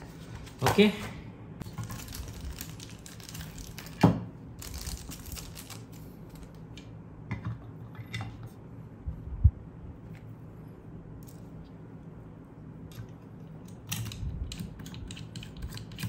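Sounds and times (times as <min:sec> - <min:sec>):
plastic bags crinkling: 0:01.6 - 0:06.5
plastic parts and screws clicking: 0:13.6 - 0:16.0.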